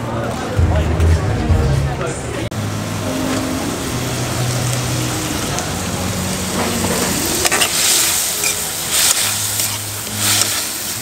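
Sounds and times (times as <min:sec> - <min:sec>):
vegetables sizzling in a wok: 0:02.6 - 0:11.0
metal spatula scraping wok: 0:06.5 - 0:11.0.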